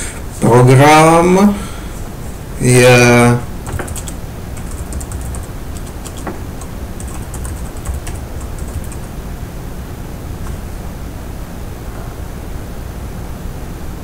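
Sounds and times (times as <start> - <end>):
steady background hiss: 0.0 - 14.0
keyboard key clicks: 3.7 - 9.1.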